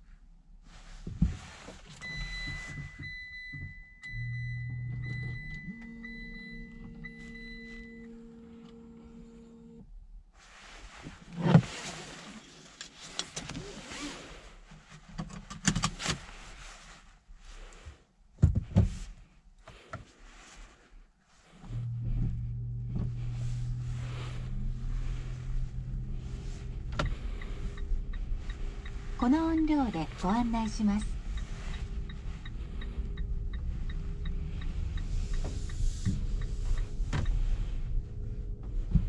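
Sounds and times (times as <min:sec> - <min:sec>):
low electric hum: 0:01.9 - 0:10.3, 0:21.6 - 0:39.0.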